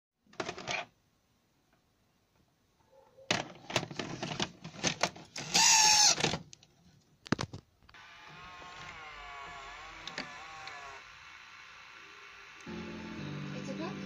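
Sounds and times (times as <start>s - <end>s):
brief motor whine: 8.0s - 14.0s.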